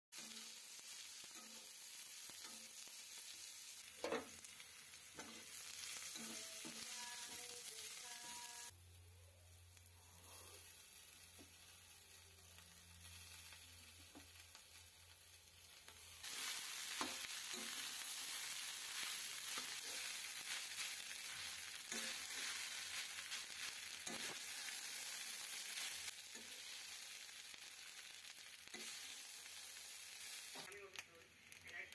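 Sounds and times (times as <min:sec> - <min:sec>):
rice sizzling in a pan: 0:00.1 - 0:31.9
steel spatula scraping a pan: 0:05.2 - 0:07.0, 0:16.2 - 0:26.8, 0:28.7 - 0:29.6.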